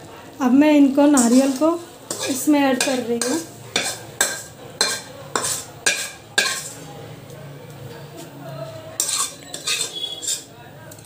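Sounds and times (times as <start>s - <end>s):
metal scraping in a pan: 0.8s - 7.0s, 8.0s - 10.6s.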